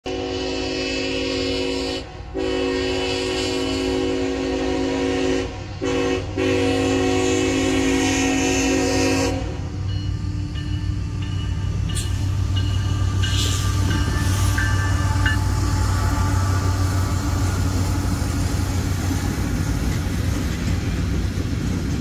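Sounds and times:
locomotive air horn: 0.0 - 9.8, 12.9 - 19.5
locomotive low rumble: 5.6 - 22.0.

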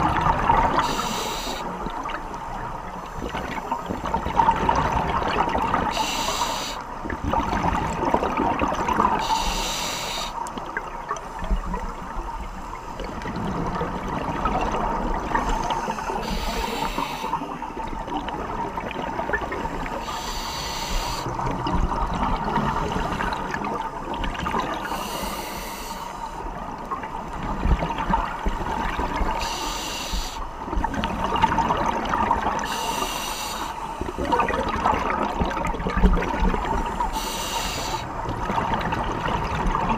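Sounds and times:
exhaled air bubbling: 0.0 - 39.9
regulator breath hiss: 0.8 - 1.8, 5.9 - 6.8, 9.2 - 10.4, 15.8 - 17.5, 20.0 - 21.3, 24.8 - 26.4, 29.4 - 30.5, 32.6 - 34.2, 36.9 - 38.1.

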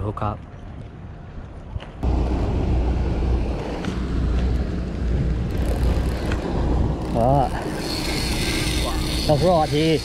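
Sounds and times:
ferry engine rumble: 2.0 - 9.2.

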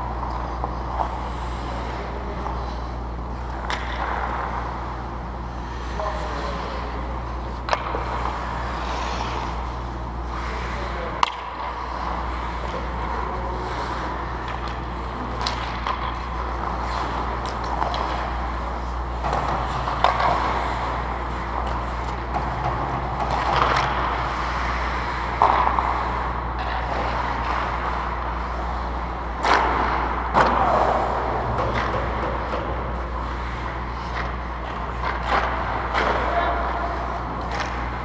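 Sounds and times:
hockey sticks and puck clacking: 0.0 - 38.0
low rink hum: 0.0 - 38.0
skates hissing on ice: 8.1 - 11.0.

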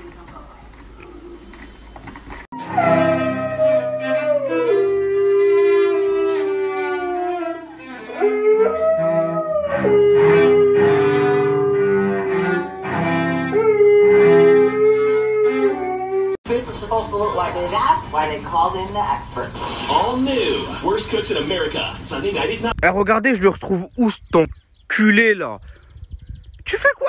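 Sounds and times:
cello bowed: 2.6 - 15.9
dog howling: 2.6 - 16.4.

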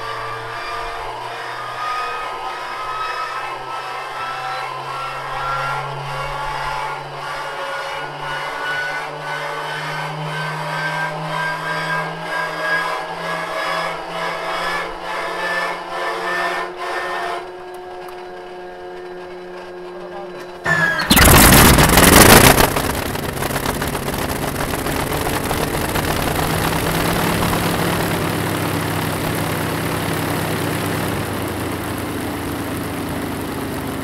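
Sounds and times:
hand-cranked flywheel whine: 0.0 - 34.0
cranking noise: 17.9 - 32.4.

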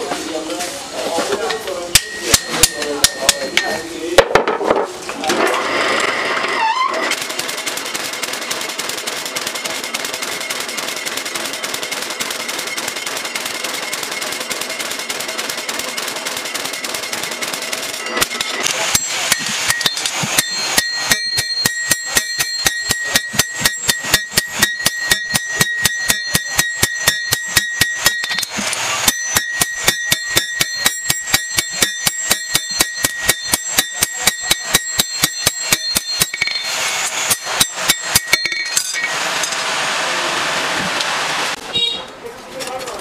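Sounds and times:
metallic ring of anvil: 1.9 - 4.2, 18.0 - 39.2
hammer blows on anvil: 1.9 - 4.7, 18.1 - 39.2.

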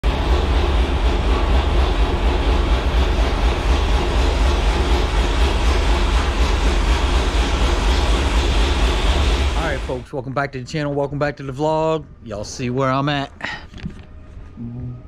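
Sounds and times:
vehicle engine rumbling: 0.0 - 10.1.

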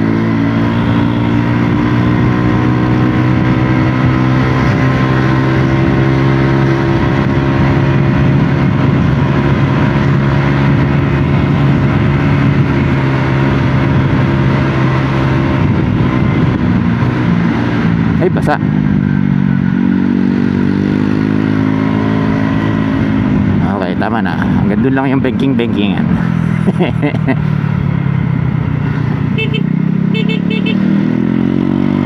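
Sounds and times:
scooter engine running: 26.1 - 30.9.

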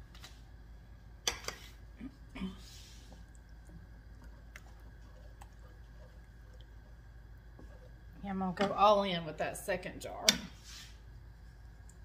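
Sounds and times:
spoon stirring thick sauce: 2.7 - 8.8.

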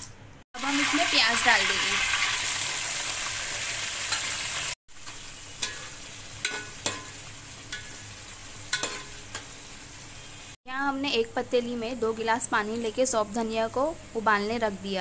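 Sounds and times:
onions sizzling in hot oil: 0.6 - 10.6
ladle clinking against pot: 8.7 - 9.4.

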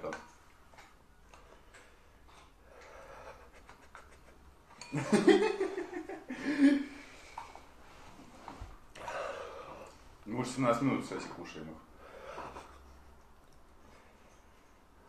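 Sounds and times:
person laughing: 3.6 - 7.0.

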